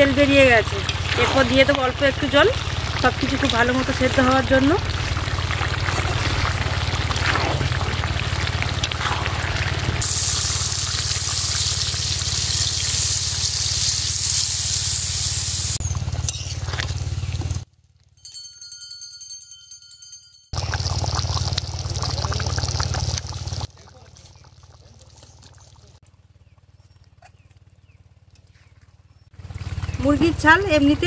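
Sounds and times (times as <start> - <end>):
water hissing in hot oil: 0.0 - 15.8, 20.6 - 26.0
loud high hiss: 10.0 - 15.8.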